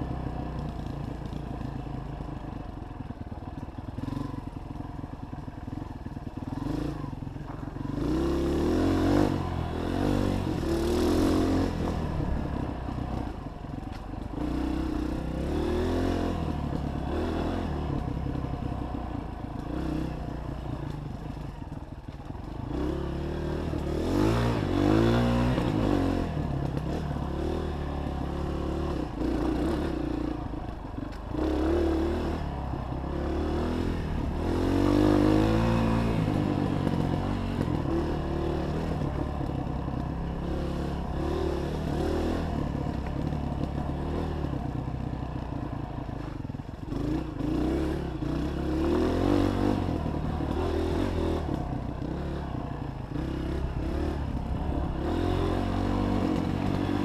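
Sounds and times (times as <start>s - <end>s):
dirt bike engine revving: 7.9s - 12.2s, 22.7s - 30.3s, 31.3s - 39.2s, 46.9s - 57.0s.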